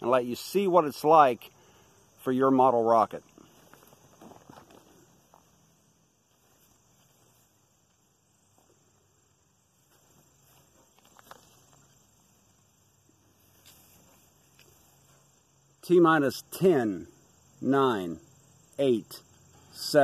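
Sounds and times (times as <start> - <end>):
crickets trilling: 0.0 - 20.0.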